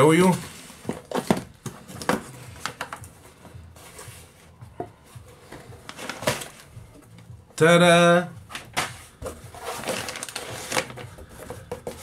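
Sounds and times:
packing paper crackling: 9.6 - 11.1.

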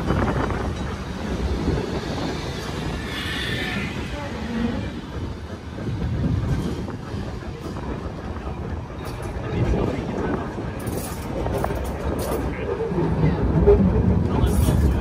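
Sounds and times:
tram rumbling on rails: 0.0 - 15.0
high-pitched wheel squeal: 2.2 - 5.1.

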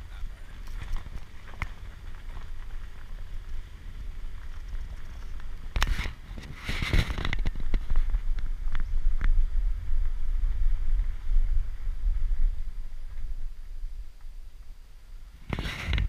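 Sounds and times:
tyres crunching gravel: 0.0 - 11.2
vehicle rumble: 0.0 - 16.0.

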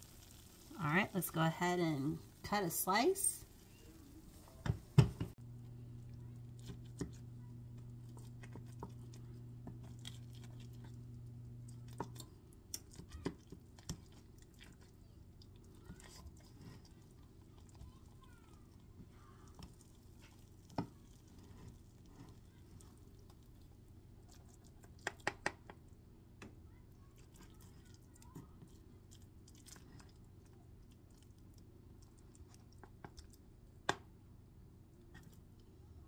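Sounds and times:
spatula squishing casserole: 5.3 - 33.7.

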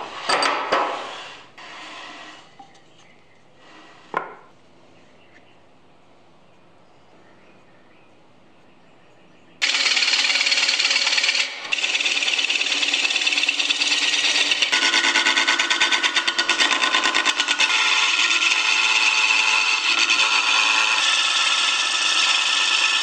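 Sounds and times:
wood scraping on a lathe: 0.0 - 2.8, 3.6 - 4.4, 9.6 - 23.0.

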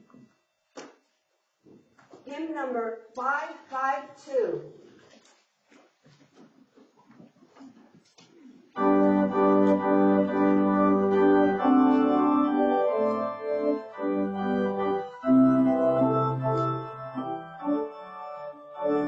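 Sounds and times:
church organ chords: 8.8 - 19.0.

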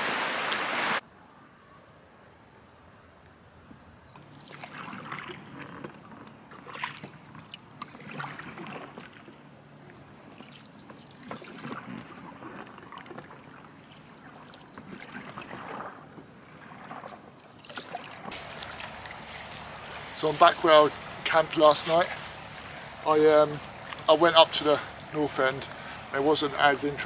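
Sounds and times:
paddle strokes in water: 4.1 - 27.0
water dripping off paddle: 9.9 - 26.2.

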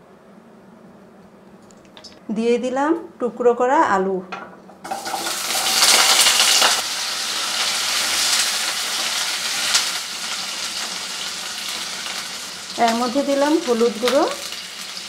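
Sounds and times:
potatoes sizzling in hot oil: 4.8 - 15.0.

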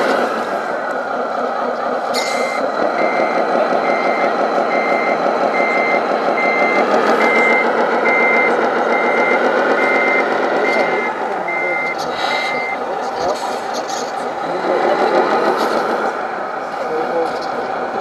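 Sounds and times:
model truck engine: 0.0 - 18.0
reversing alarm beeping: 2.0 - 13.6.

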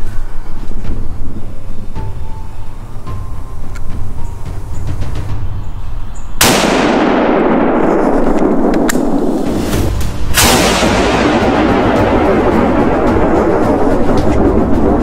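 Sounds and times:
steady rush of noise: 0.0 - 15.0
rifle shot booms: 6.4 - 13.4.

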